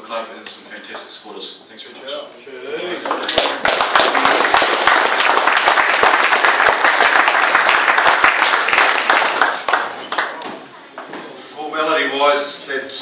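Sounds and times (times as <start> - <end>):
crowd applauding: 3.0 - 10.7.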